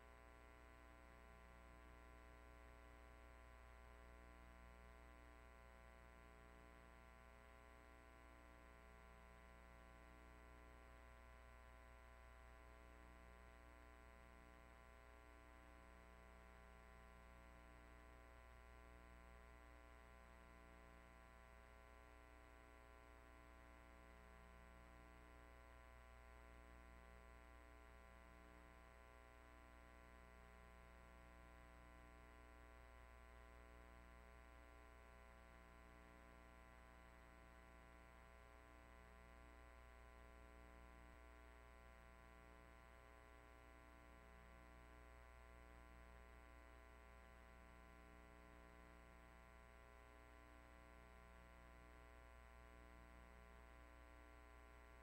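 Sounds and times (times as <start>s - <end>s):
faint electrical hum: 0.0s - 55.0s.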